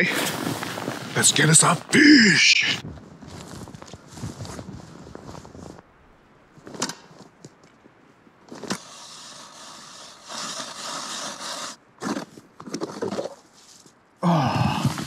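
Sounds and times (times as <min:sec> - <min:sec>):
crunching and scraping on snow: 0:00.0 - 0:05.9, 0:06.5 - 0:15.0.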